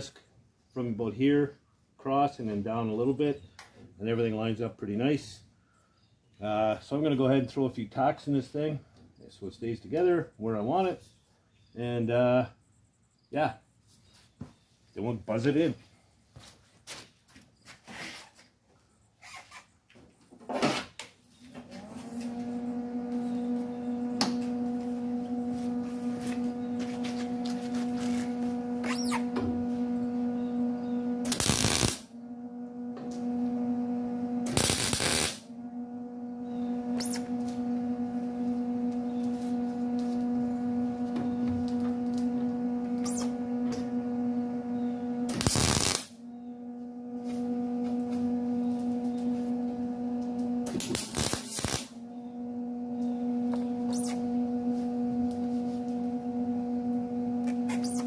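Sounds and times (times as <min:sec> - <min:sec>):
steady electrical hum: 0:21.9 - 0:58.0
welder tack welds: 0:22.2 - 0:30.0, 0:30.6 - 0:32.1, 0:34.4 - 0:35.5, 0:36.5 - 0:40.4, 0:41.0 - 0:44.0, 0:45.2 - 0:46.2, 0:47.2 - 0:52.2, 0:53.0 - 0:56.1, 0:57.4 - 0:58.0.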